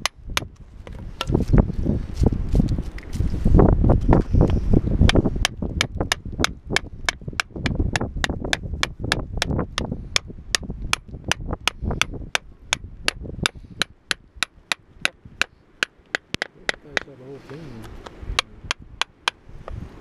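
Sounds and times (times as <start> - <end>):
hammer striking chisel on rock: 5.1 - 17.2, 18.4 - 19.4.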